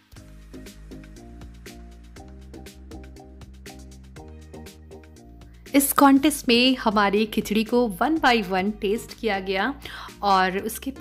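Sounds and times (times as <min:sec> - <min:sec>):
upbeat background music: 0:00.0 - 0:11.0.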